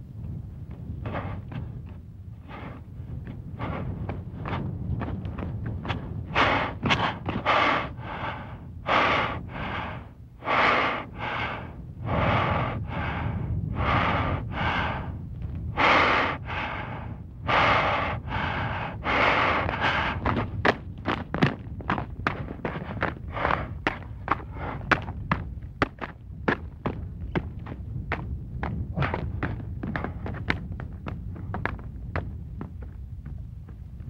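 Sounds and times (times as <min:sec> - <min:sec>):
man panting: 0:03.5 - 0:04.0, 0:06.3 - 0:20.6, 0:22.7 - 0:25.1, 0:28.9 - 0:30.3
footsteps on stony ground: 0:19.2 - 0:34.0.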